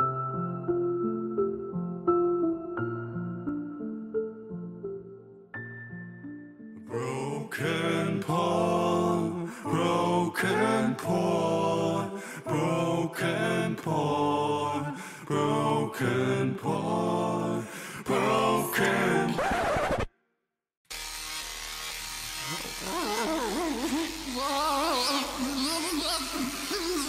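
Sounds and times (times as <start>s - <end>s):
person singing wordless melody: 6.8s - 19.4s.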